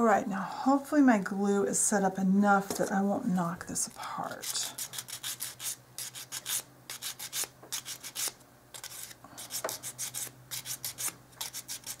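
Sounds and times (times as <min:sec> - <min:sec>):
emery board filing wood: 0:04.8 - 0:12.0.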